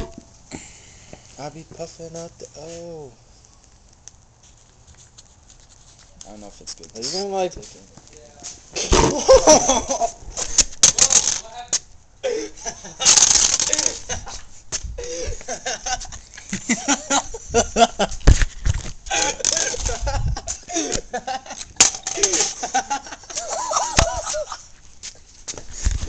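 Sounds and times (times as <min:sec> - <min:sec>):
laughter: 0:08.8 - 0:10.2, 0:12.3 - 0:14.4, 0:15.0 - 0:18.2, 0:19.2 - 0:24.7.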